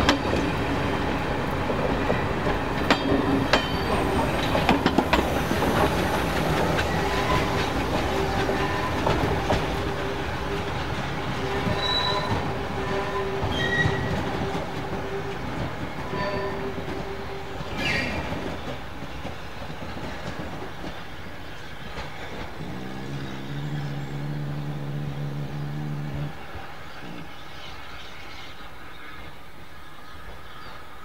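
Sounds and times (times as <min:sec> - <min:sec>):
steam locomotive hauling coaches: 0:00.0 - 0:31.0
low steady note: 0:06.9 - 0:17.8, 0:22.6 - 0:26.5
wheel squeal: 0:17.8 - 0:18.4.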